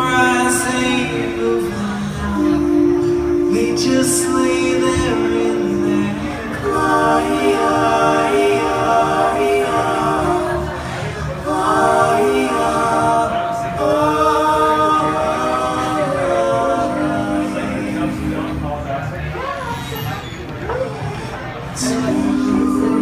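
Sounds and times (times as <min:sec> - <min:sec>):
person singing: 0:00.0 - 0:10.7, 0:21.8 - 0:23.0.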